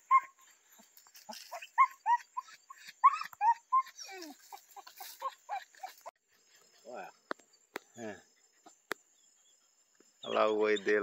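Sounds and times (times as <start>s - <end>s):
dog yelping and whining: 0.0s - 6.1s.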